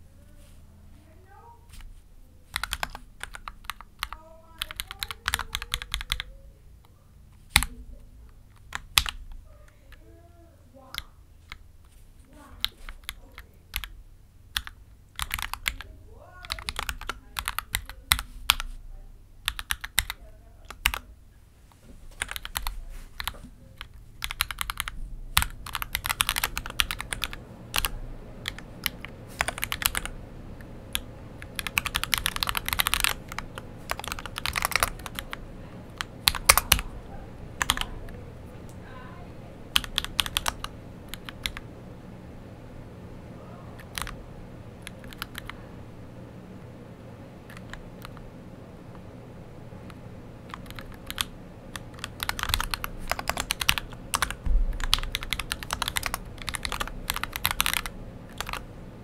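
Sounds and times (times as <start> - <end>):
mechanical keyboard typing: 1.7 - 6.4, 7.4 - 10.1, 10.8 - 18.8, 19.4 - 21.1, 22.2 - 38.8, 39.6 - 41.7, 43.7 - 44.2, 44.8 - 45.6, 47.4 - 48.3, 49.8 - 58.7.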